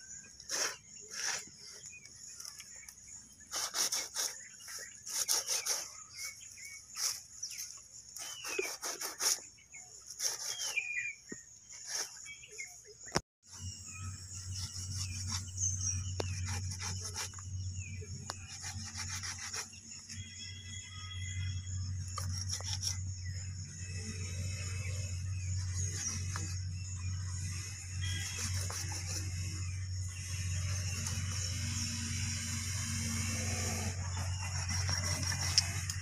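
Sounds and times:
knife scraping and slicing flesh: 0.0 - 9.5, 10.1 - 11.1, 34.0 - 36.0
bird chirps: 0.0 - 36.0.

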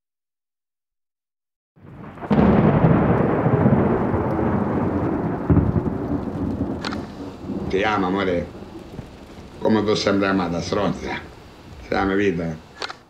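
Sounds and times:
thunder rumbling: 1.8 - 12.8
heavy rain: 1.8 - 13.0
sharp click: 6.8 - 7.1, 12.8 - 13.0.

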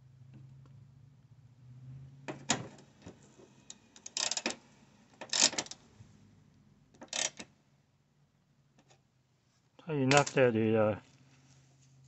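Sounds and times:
ratchet wrench clicking: 4.0 - 4.6, 5.3 - 5.7, 7.1 - 7.4.

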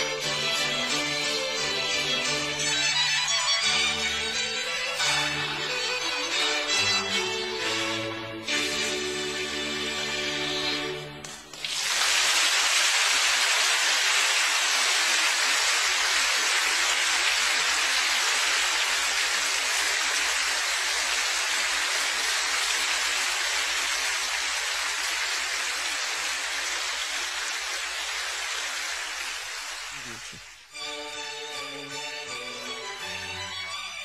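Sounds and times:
violin music: 0.0 - 11.4, 30.0 - 34.0
loud steady hiss: 11.5 - 30.8.

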